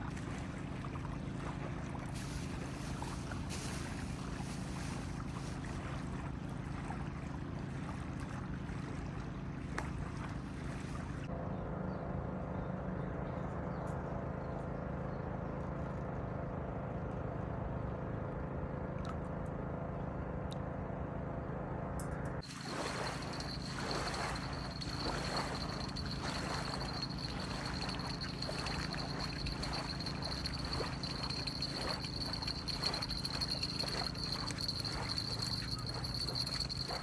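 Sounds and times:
ripples lapping at river's edge: 0:00.0 - 0:11.3, 0:22.4 - 0:37.0
low motor hum: 0:00.0 - 0:13.6, 0:16.5 - 0:37.0.

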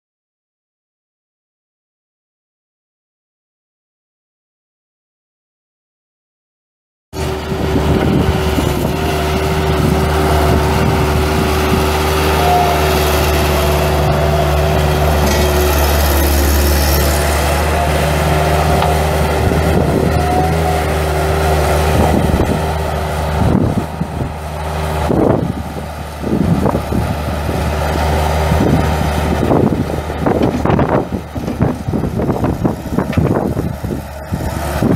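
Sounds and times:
diesel engine running: 0:07.2 - 0:34.9
engine knocks: 0:09.7 - 0:20.7, 0:28.3 - 0:34.9.

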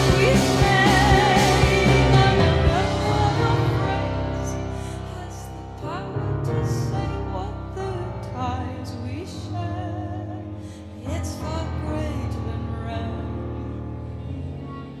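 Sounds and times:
rock band with keyboard: 0:00.0 - 0:05.0.

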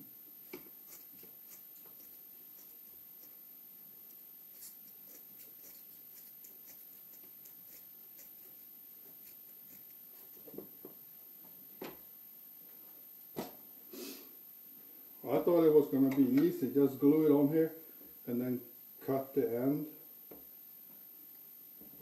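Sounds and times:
scissors cutting rubber: 0:00.5 - 0:03.4.

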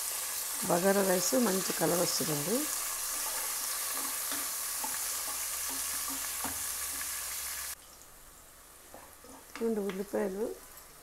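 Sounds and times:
onions sizzling in oil: 0:00.0 - 0:11.0
wooden spatula scraping a pot: 0:02.8 - 0:07.3.

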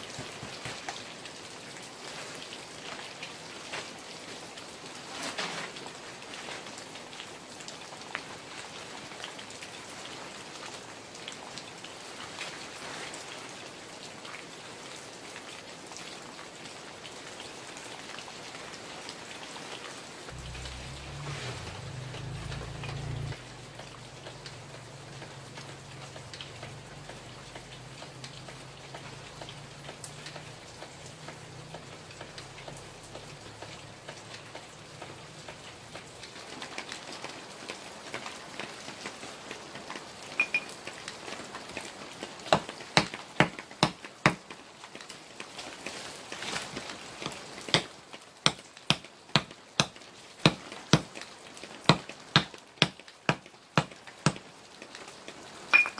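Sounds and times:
knife chopping plant stems: 0:48.5 - 0:51.2.

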